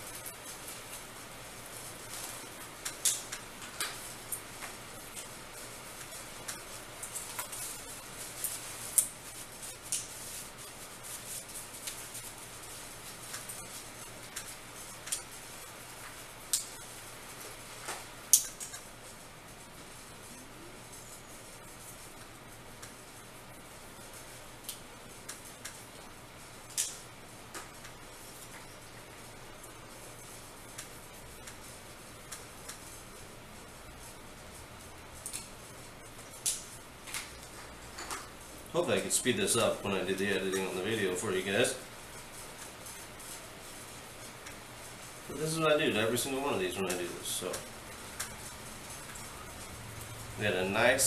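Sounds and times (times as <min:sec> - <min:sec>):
faint hiss: 0:00.0 - 0:51.0
paper swishing on glass screen: 0:00.0 - 0:51.0.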